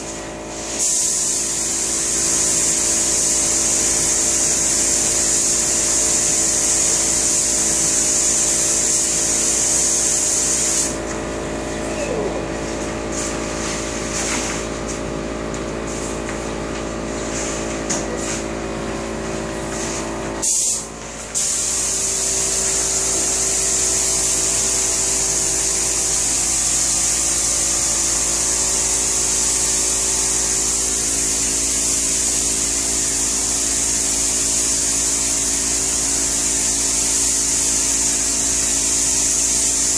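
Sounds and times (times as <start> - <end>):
spray gun hissing: 0.5 - 11.1, 12.8 - 14.8, 15.8 - 16.3, 19.4 - 39.9
steady machine hum: 10.5 - 33.4.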